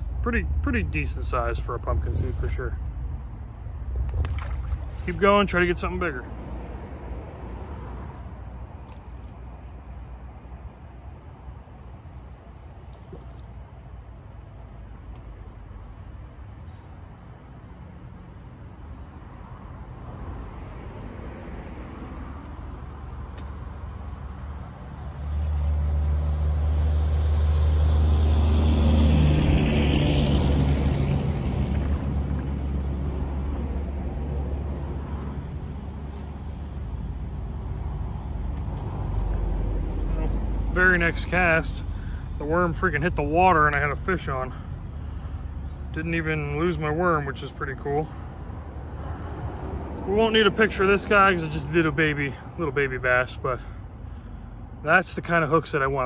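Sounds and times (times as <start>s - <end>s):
vehicle engine passing by: 4.2s - 8.4s, 24.8s - 54.6s.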